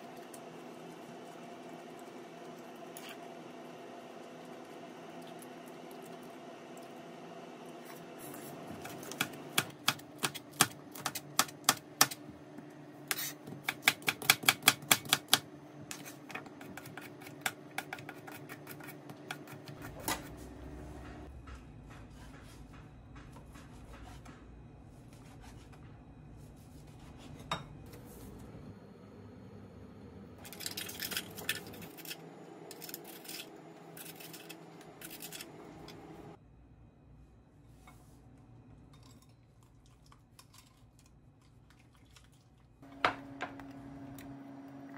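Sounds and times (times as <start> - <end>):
knife chopping on plastic board: 13.6 - 15.4.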